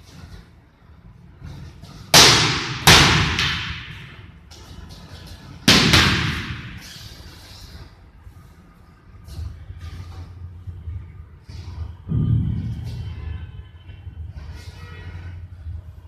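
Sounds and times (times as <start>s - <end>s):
sticks striking punching bags: 1.9s - 4.3s, 5.6s - 6.8s.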